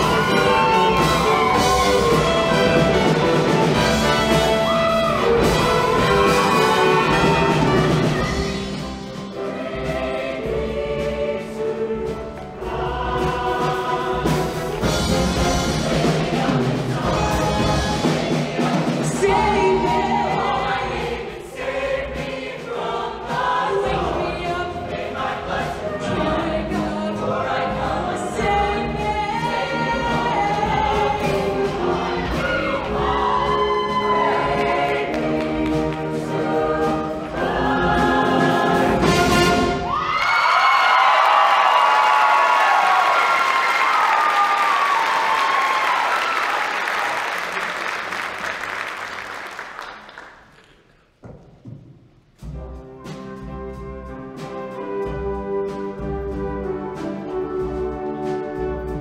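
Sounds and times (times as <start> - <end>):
live band with brass: 0.0 - 22.0, 28.4 - 40.2, 52.4 - 59.0
choir singing: 0.0 - 40.0.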